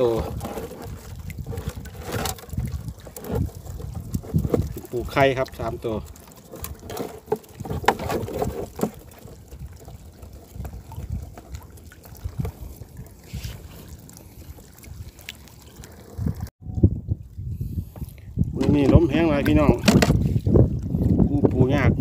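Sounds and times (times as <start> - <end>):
wind buffeting microphone: 0.0 - 5.9, 6.6 - 22.0
crab trap knocking and rattling: 6.4 - 9.4, 18.6 - 20.2.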